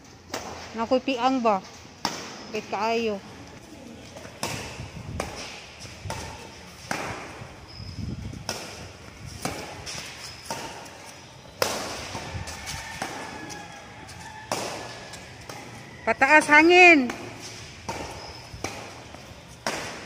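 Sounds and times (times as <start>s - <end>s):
racket hitting shuttlecock: 2.0s - 2.5s, 4.2s - 7.5s, 8.4s - 12.3s, 13.0s - 20.0s.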